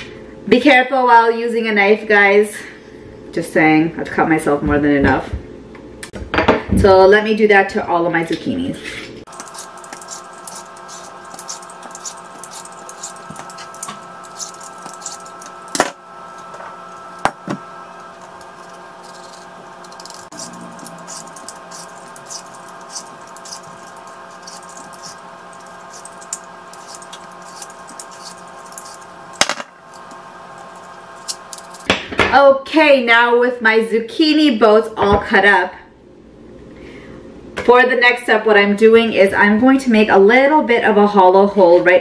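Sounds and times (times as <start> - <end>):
knife slicing: 9.3 - 16.5, 17.1 - 31.9
faint drone: 9.3 - 30.2
peeler scraping zucchini: 9.3 - 31.9.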